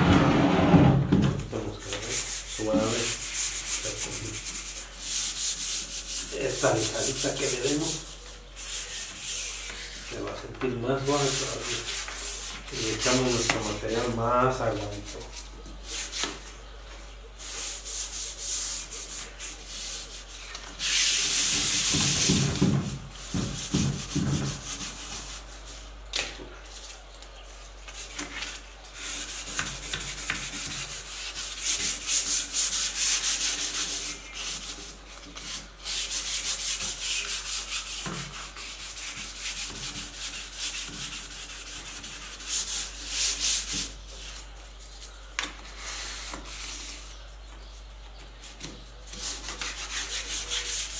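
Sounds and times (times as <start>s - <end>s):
sandpaper sanding wood: 1.9s - 10.3s, 11.0s - 16.3s, 17.4s - 25.7s, 27.9s - 44.5s, 49.1s - 50.9s.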